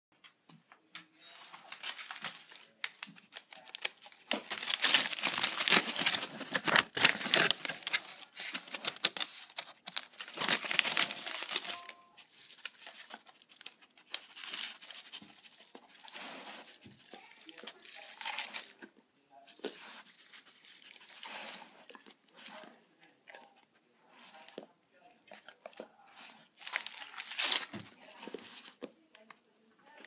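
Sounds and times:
aluminium foil crinkling: 0:01.3 - 0:18.9, 0:19.5 - 0:22.7, 0:26.0 - 0:29.3.

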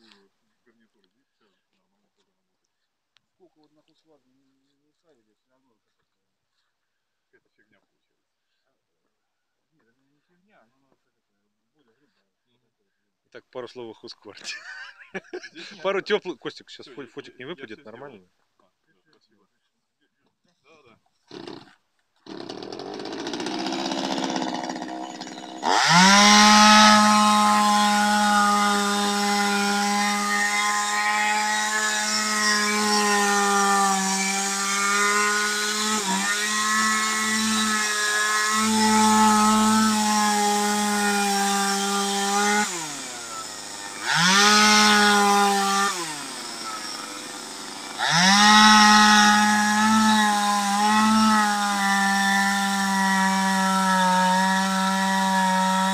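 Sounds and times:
chainsaw cutting log: 0:21.3 - 0:55.9.

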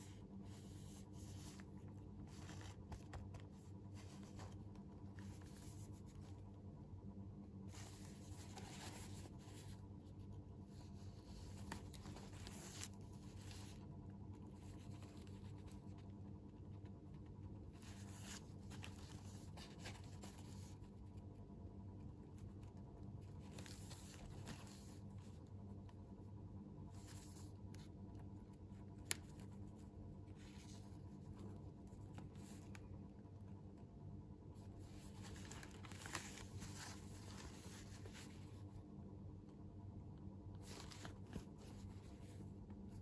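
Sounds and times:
low steady hum: 0:00.0 - 0:43.0
cardboard boxes rustling and scraping: 0:34.9 - 0:38.4.

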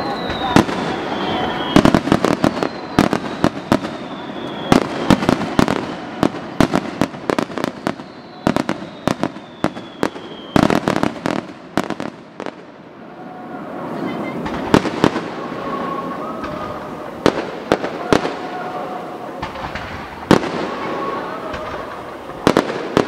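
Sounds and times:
faint descending whistle: 0:00.0 - 0:06.2, 0:07.6 - 0:10.7
fireworks bursting with bangs: 0:00.0 - 0:23.0.

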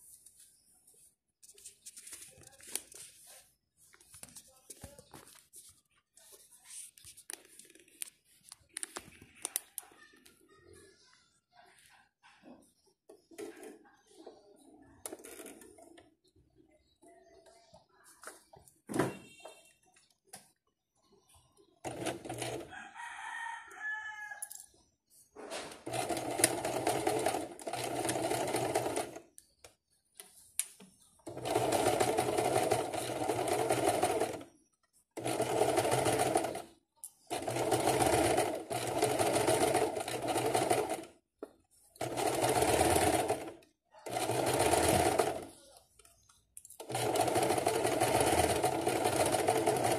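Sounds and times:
sewing machine stitching: 0:21.8 - 0:22.7, 0:25.6 - 0:29.3, 0:31.2 - 0:34.6, 0:35.2 - 0:41.2, 0:42.0 - 0:45.6, 0:46.8 - 0:49.9
rooster crowing: 0:22.7 - 0:24.5.

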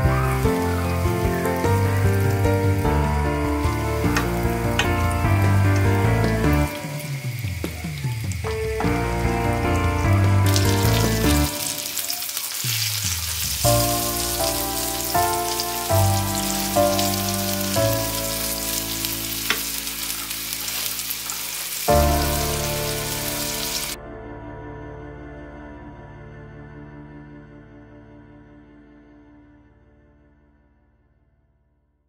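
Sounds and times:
pork chops sizzling in oil: 0:00.0 - 0:24.0
background music: 0:00.0 - 0:30.7.

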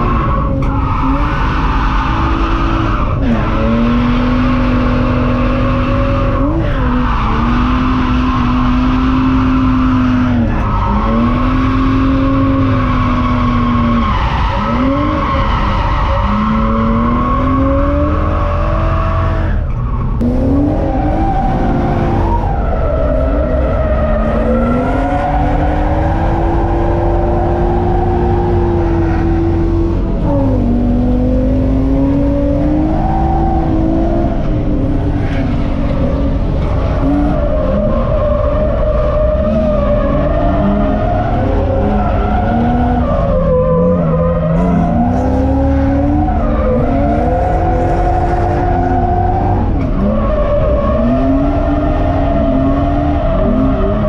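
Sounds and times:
car engine revving hard: 0:00.0 - 0:54.0.

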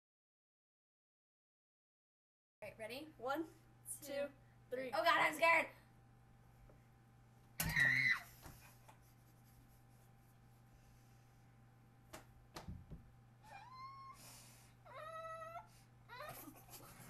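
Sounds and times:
low steady hum: 0:02.6 - 0:17.0
high-pitched whining cries: 0:07.6 - 0:08.4, 0:13.4 - 0:14.3.

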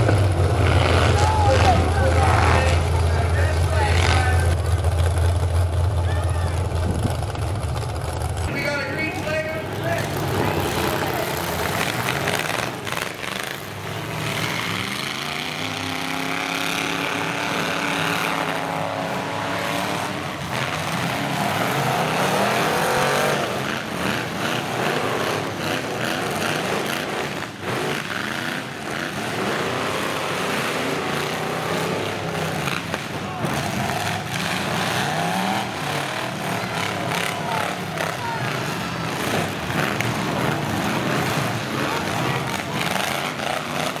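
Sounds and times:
truck engines revving: 0:00.0 - 0:44.0.

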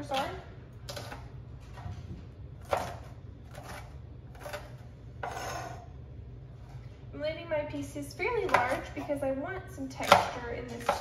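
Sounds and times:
knife chopping on cutting board: 0:02.6 - 0:05.8.

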